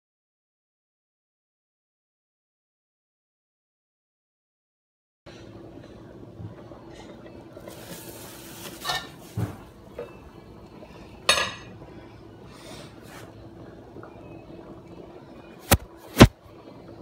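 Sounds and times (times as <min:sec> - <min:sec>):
plastic sheet rustling: 0:07.7 - 0:09.7
metal pot lids clanking: 0:08.7 - 0:09.4.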